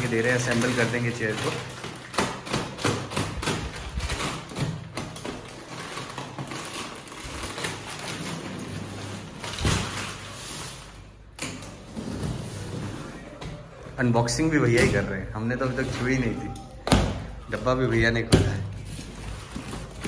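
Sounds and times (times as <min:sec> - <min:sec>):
plastic wrapping crinkling: 0:00.0 - 0:11.4, 0:12.5 - 0:20.0.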